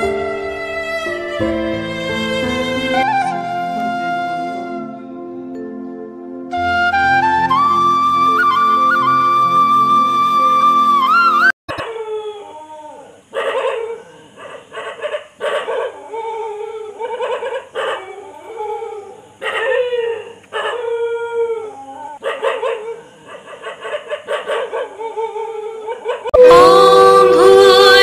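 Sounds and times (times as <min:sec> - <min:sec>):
dog whining and howling: 0:10.4 - 0:14.1, 0:14.8 - 0:28.0.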